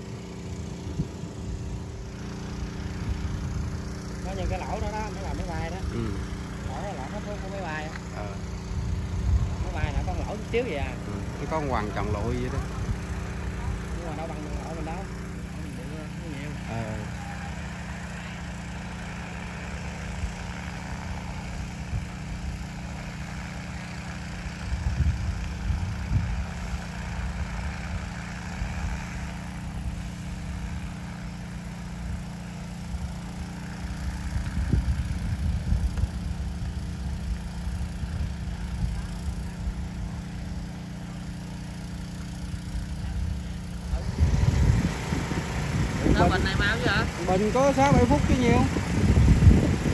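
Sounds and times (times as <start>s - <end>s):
drone rotors flying: 0.0s - 49.9s
wind rumbling on microphone: 8.5s - 11.4s, 24.6s - 29.0s, 34.1s - 39.9s, 42.9s - 49.9s.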